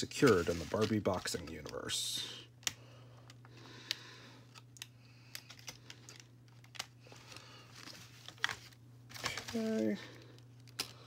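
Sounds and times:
hands handling plastic doll: 0.0s - 2.0s, 4.5s - 11.0s
low steady hum: 0.0s - 11.0s.

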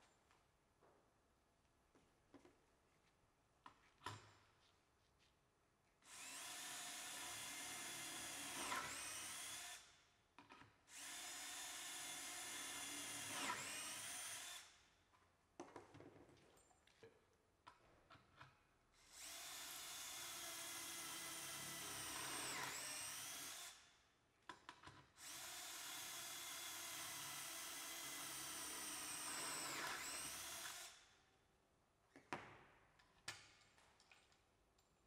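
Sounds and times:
cordless drill boring: 6.1s - 9.9s, 10.9s - 14.7s, 19.0s - 23.8s, 25.2s - 31.0s.

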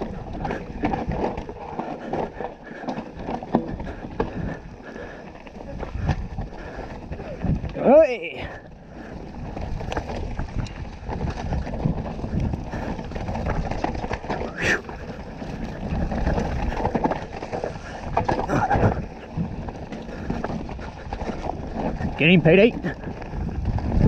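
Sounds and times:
bike knocks and rattles: 0.0s - 24.0s
bike tyres rolling over dirt: 0.0s - 24.0s
wind on microphone: 5.6s - 7.9s, 9.0s - 22.2s, 22.8s - 24.0s.

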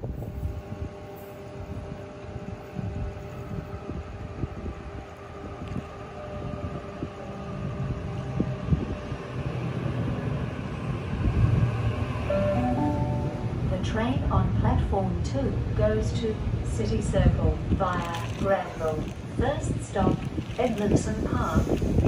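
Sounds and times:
train wheels rumbling on rails: 13.4s - 22.0s.

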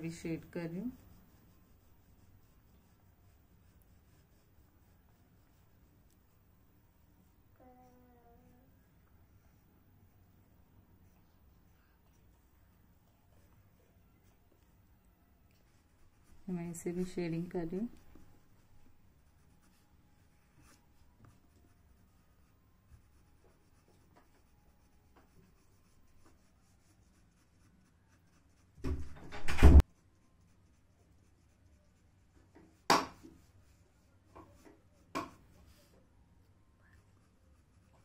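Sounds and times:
pencil shading on paper: 0.0s - 7.5s, 15.5s - 29.2s, 29.8s - 35.9s, 36.8s - 38.0s.

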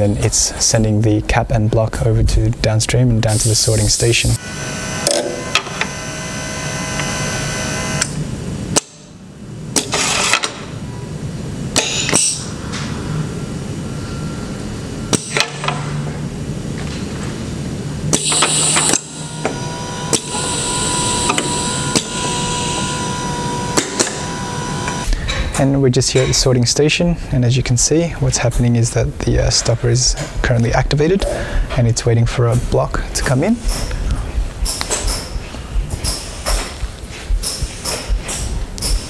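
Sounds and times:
steady machine hum: 0.0s - 39.0s
exhaust air hissing: 3.2s - 8.2s, 17.9s - 25.4s
pneumatic cylinders clacking: 9.8s - 10.6s, 11.8s - 12.9s, 18.1s - 25.5s, 34.6s - 39.0s.

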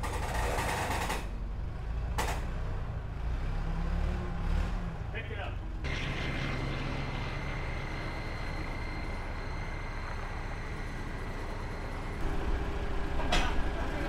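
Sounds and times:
faint high whine: 5.9s - 12.8s.

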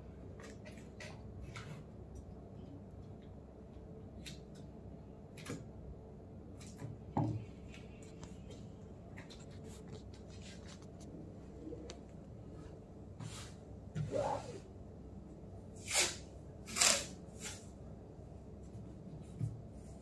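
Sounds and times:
tape and scissors rustling: 15.8s - 17.7s.

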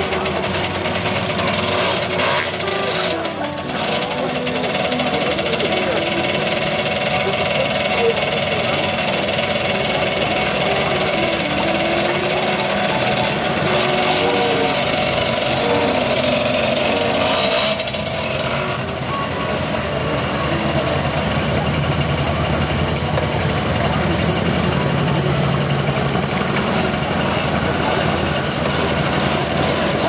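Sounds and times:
moped engines running: 0.0s - 30.0s.

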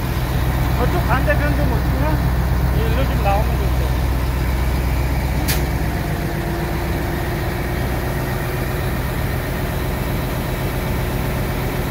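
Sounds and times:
diesel engine idling: 0.0s - 11.9s
short hiss: 5.4s - 5.8s.

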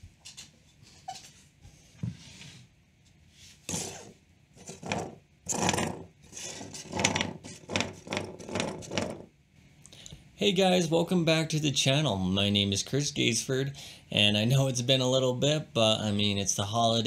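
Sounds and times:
rubbing and scraping noises: 0.0s - 9.3s.

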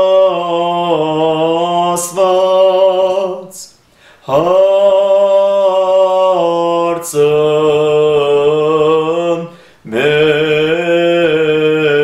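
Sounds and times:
man chanting a hymn: 0.0s - 12.0s
quick breath: 3.8s - 4.3s, 9.5s - 9.9s.

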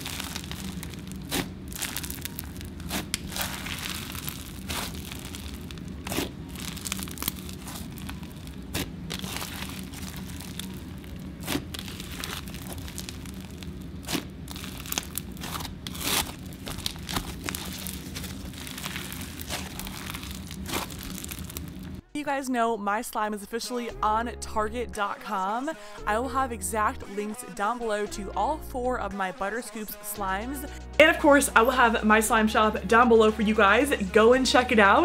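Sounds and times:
slime crackling and popping: 0.0s - 22.0s
steady low hum: 0.0s - 22.1s.

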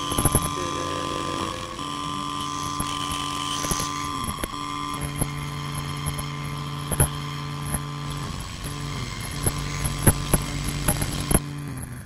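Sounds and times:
electronic hum of held tones: 0.0s - 12.0s
static crackles and clicks: 6.9s - 11.4s.

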